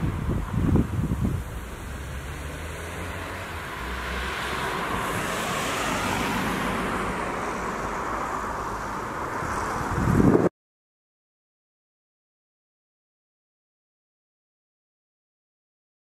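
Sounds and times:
wind gust on microphone: 0.0 - 10.5
wind rushing through branches: 0.0 - 10.5.

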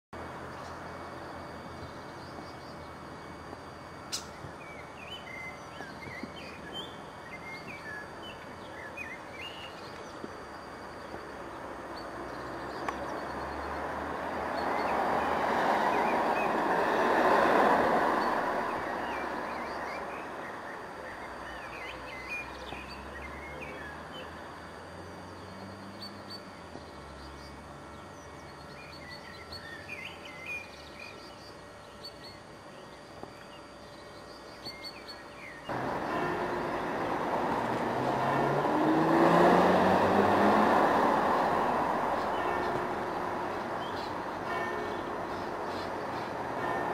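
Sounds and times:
steady background noise: 0.2 - 46.9
small birds chirping: 4.1 - 13.9, 41.3 - 46.5
vehicle passing: 12.2 - 20.7, 35.7 - 46.9.

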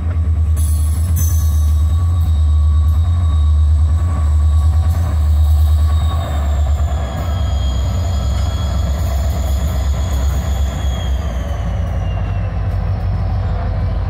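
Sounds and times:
diesel locomotive engine rumble: 0.0 - 14.0.

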